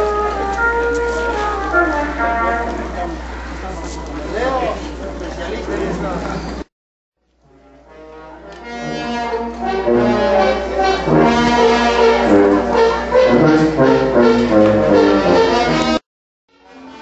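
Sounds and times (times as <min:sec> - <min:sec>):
brass band playing: 0:00.0 - 0:03.2, 0:07.8 - 0:16.0.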